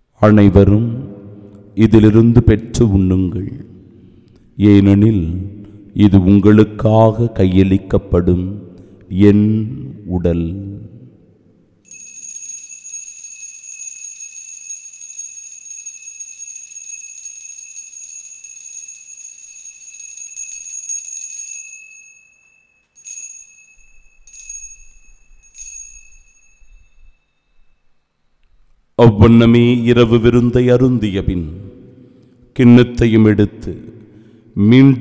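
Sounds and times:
altar bells ringing: 11.8s - 28.1s.

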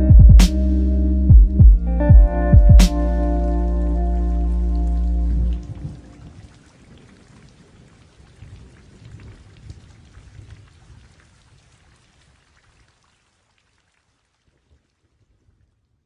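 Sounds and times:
low uneven rumble: 0.0s - 6.6s.

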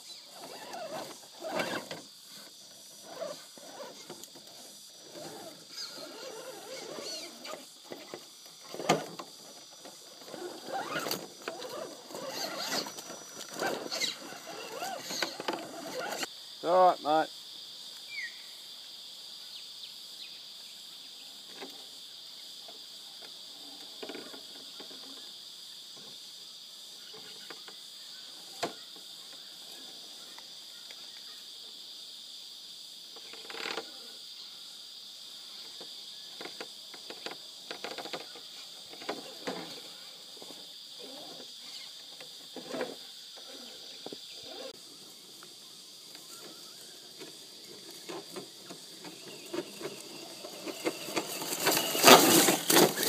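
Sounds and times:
insects buzzing: 0.0s - 53.0s
toy car tyres clicking on rocks: 5.2s - 16.3s, 47.2s - 53.0s.

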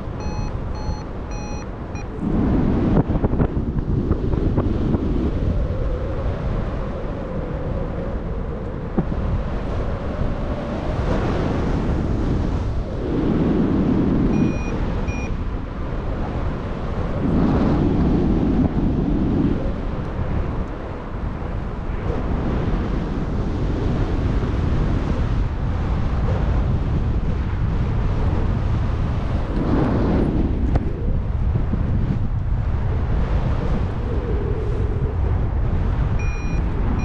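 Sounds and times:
wind rushing over microphone: 0.0s - 37.0s
short high beeps: 0.2s - 2.1s, 14.4s - 15.3s, 36.2s - 36.6s.

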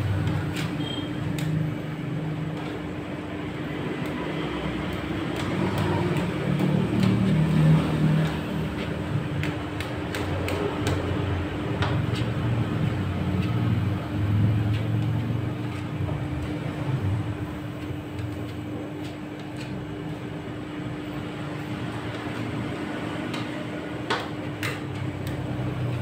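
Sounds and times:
refrigeration unit humming: 0.0s - 26.0s.

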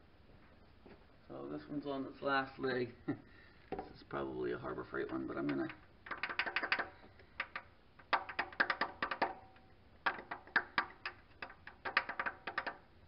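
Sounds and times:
hammer tapping metal sprocket: 5.0s - 12.8s.

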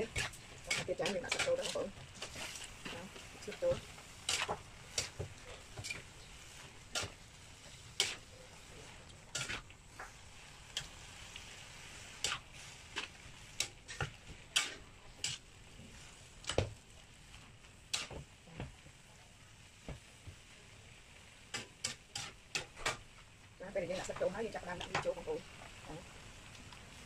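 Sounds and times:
food sizzling in a pan: 0.0s - 27.0s
utensil clicking against pan: 0.1s - 6.0s, 21.5s - 23.0s.

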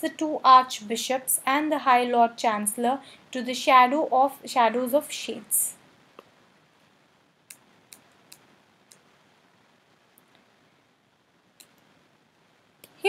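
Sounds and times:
faint sharp clicks: 7.5s - 9.1s.

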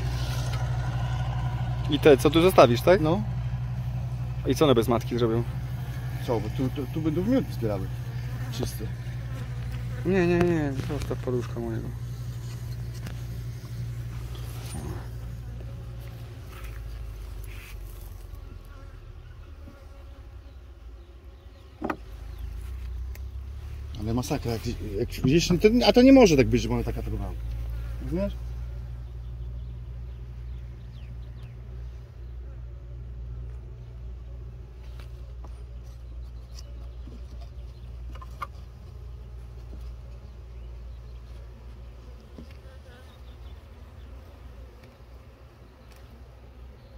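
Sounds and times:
steady low rumble: 0.0s - 18.1s
bees buzzing: 0.0s - 46.9s
hive tool clicking and scraping: 35.2s - 40.3s.

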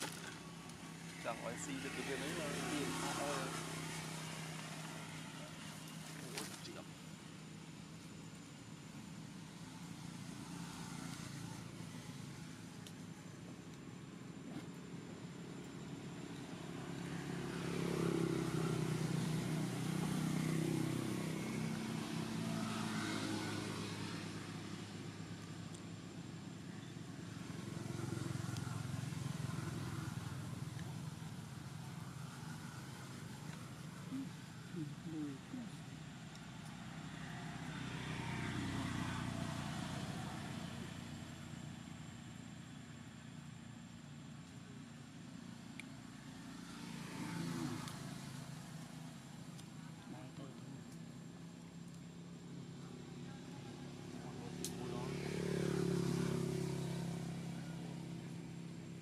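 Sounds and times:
vehicle engine passing: 0.0s - 6.9s, 16.5s - 26.0s, 27.0s - 42.4s, 45.0s - 59.0s.

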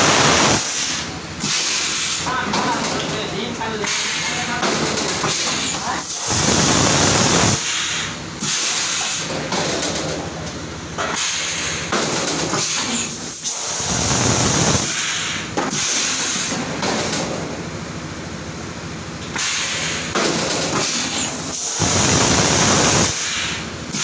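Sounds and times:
compressed air hissing blasts: 0.0s - 2.2s, 6.1s - 9.2s, 13.3s - 16.5s, 20.9s - 24.0s.

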